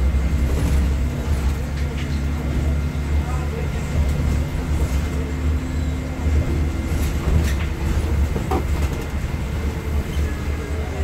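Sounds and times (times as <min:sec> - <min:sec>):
bus engine rumble: 0:00.0 - 0:11.0
road noise: 0:00.0 - 0:11.0.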